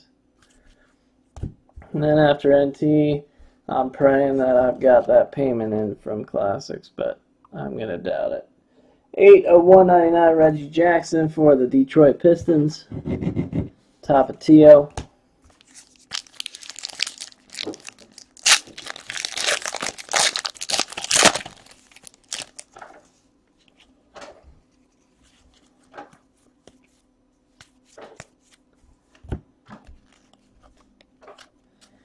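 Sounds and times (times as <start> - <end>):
wrapper tearing and crinkling: 15.6 - 22.8.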